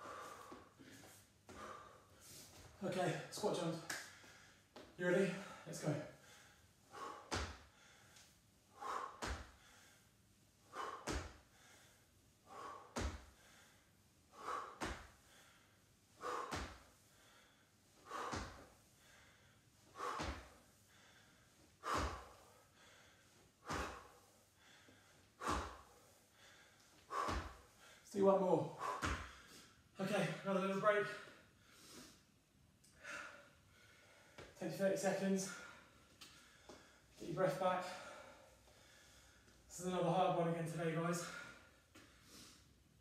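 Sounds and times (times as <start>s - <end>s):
short puffs of breath: 0.0s - 2.7s, 5.4s - 28.0s, 28.7s - 29.8s, 31.6s - 32.3s, 41.2s - 42.8s.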